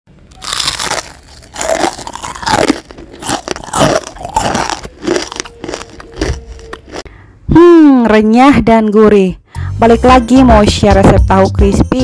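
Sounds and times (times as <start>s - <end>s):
crunchy food being chewed: 0.3s - 7.1s.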